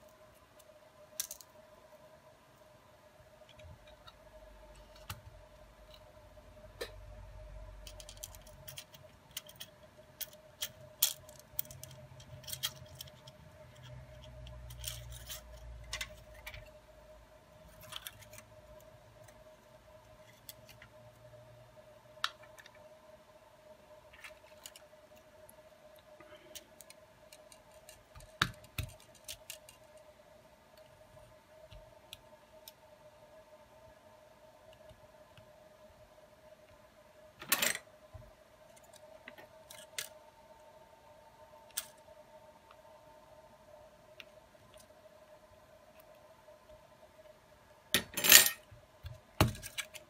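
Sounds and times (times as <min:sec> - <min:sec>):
faint steady hum: 0:00.0 - 0:50.0
plastic parts clicking and tapping: 0:26.5 - 0:30.0, 0:49.0 - 0:50.0.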